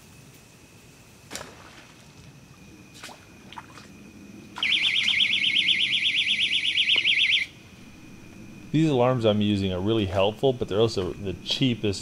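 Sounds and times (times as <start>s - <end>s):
electronic bite alarm warbling: 4.6s - 12.0s.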